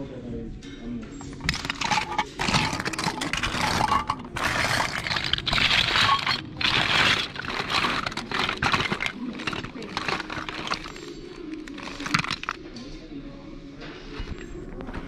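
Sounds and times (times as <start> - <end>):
plastic toy pieces clattering: 1.2 - 12.6.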